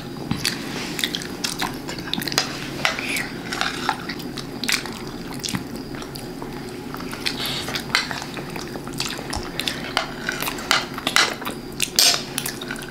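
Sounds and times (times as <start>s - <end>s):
metal spoons clinking on plates: 12.0s - 12.8s.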